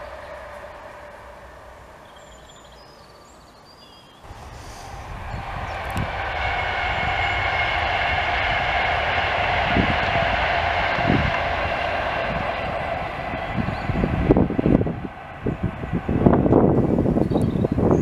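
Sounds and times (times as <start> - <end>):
bird chirps: 0.0 - 5.8, 17.2 - 18.0
distant electric train: 0.0 - 18.0
electric train rushing with high whine: 0.0 - 18.0.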